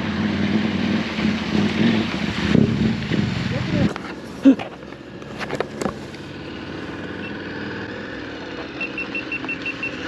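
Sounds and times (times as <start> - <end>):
high beeps: 8.8 - 10.0.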